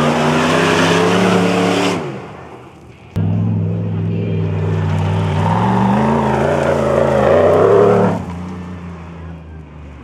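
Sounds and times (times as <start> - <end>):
suv engine accelerating hard: 3.2 - 9.8.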